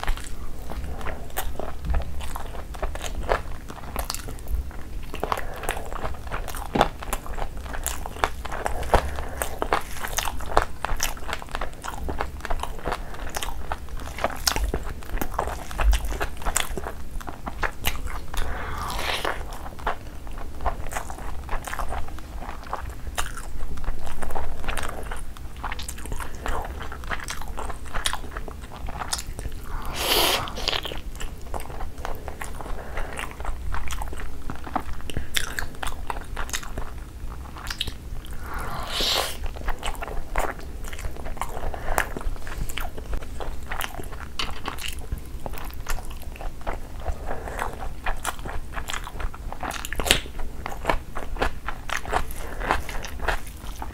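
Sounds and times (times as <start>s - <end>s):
wet chewing and mouth smacks: 5.0s - 53.9s.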